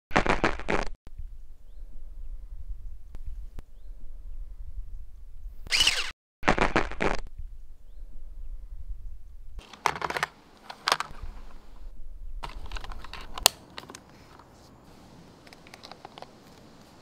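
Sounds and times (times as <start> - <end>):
low rumble: 1.1 - 5.6, 7.3 - 9.6, 11.1 - 12.4.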